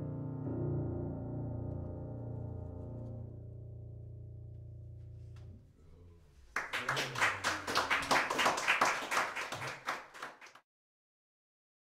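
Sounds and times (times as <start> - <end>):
piano chord: 0.0 - 5.6
small group applauding: 6.4 - 10.6.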